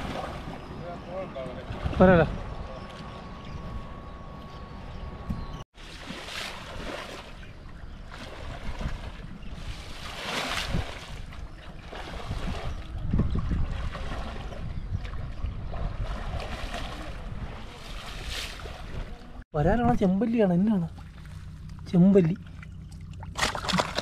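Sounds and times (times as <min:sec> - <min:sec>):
wind rumble on microphone: 0:00.0 - 0:05.6, 0:07.5 - 0:20.2
water swishing and sloshing: 0:00.0 - 0:19.4, 0:20.7 - 0:24.0.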